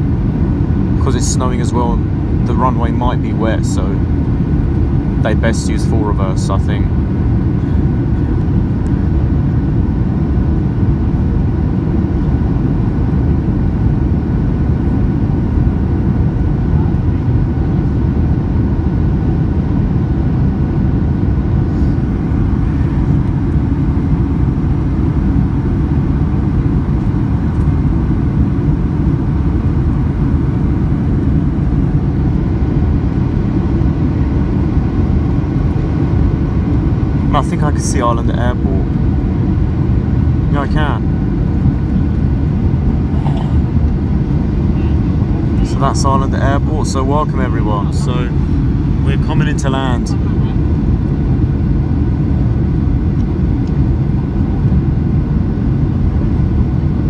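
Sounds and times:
airplane cabin noise: 0:00.0 - 0:57.0
faint steady engine whine: 0:00.0 - 0:57.0.

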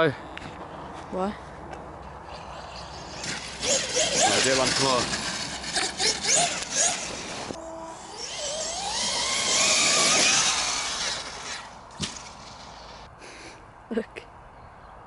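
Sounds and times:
electric motor whine: 0:03.2 - 0:11.8.

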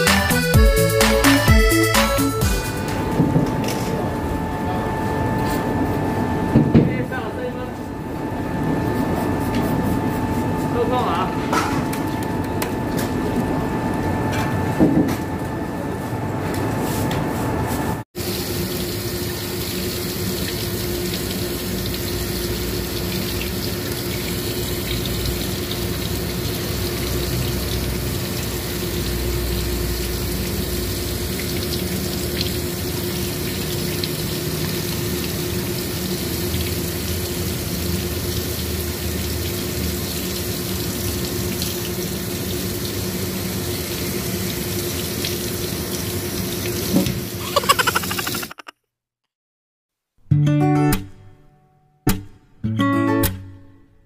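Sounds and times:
tap water running into sink: 0:18.2 - 0:48.2
sharp knock: 0:52.1 - 0:52.4.

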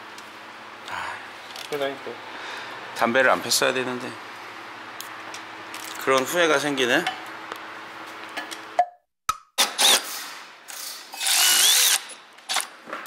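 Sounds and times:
cordless electric ratchet whirring: 0:09.6 - 0:12.7.

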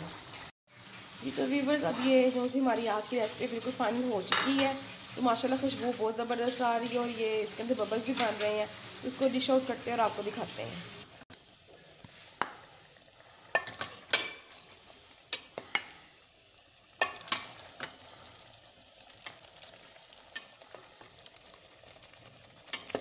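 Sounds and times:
soft sizzle of bubbling gravy: 0:00.0 - 0:23.0
spoon knocking and scraping pot: 0:04.3 - 0:04.8, 0:13.5 - 0:14.6, 0:17.0 - 0:18.0.

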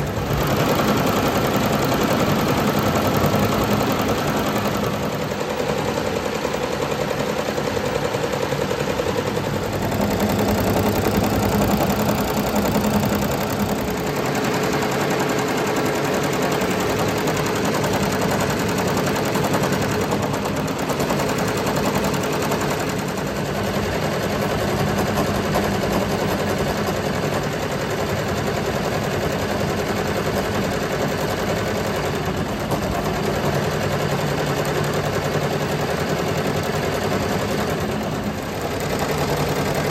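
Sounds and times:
embroidery machine needle chatter: 0:09.5 - 0:14.4.

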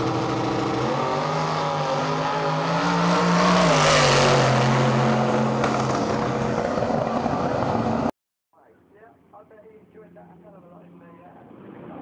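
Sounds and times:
drag racing car engine at full throttle: 0:00.0 - 0:08.1.

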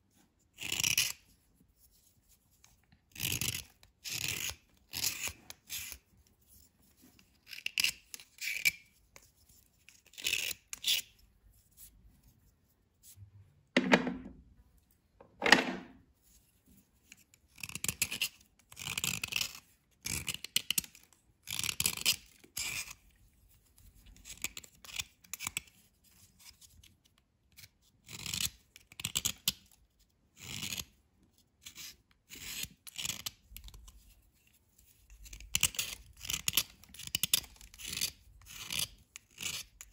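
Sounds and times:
knife scraping a dry bar: 0:00.6 - 0:11.9, 0:30.4 - 0:39.9.

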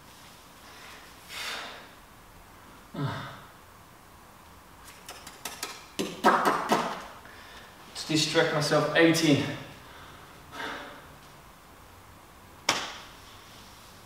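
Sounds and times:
man exhaling hard: 0:01.3 - 0:01.9
man's strained vocal sound: 0:02.9 - 0:03.5
mouth clicks: 0:04.9 - 0:06.8.

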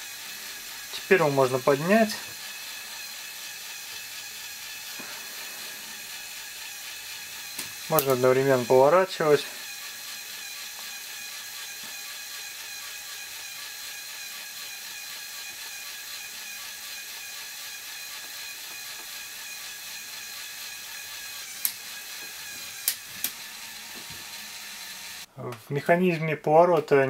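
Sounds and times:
toy electric motor whirring: 0:00.0 - 0:25.3
sharp clicks: 0:22.8 - 0:23.4.

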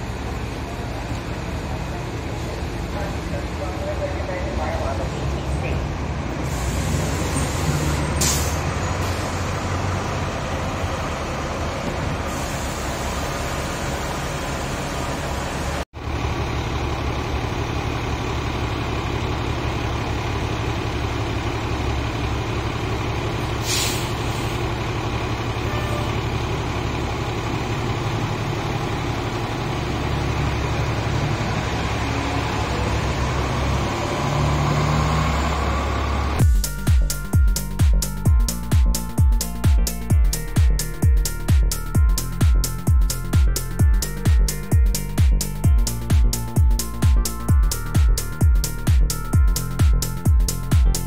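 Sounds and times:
bus engine drone: 0:00.0 - 0:51.0
air brake hisses: 0:06.4 - 0:09.5, 0:12.2 - 0:13.9, 0:23.6 - 0:24.7.

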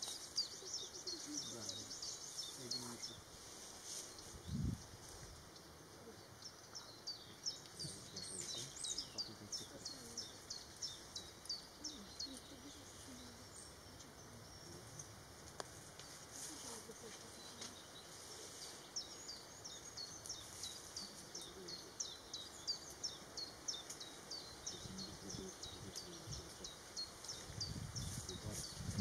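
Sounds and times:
faint outdoor background noise: 0:00.0 - 0:29.0.

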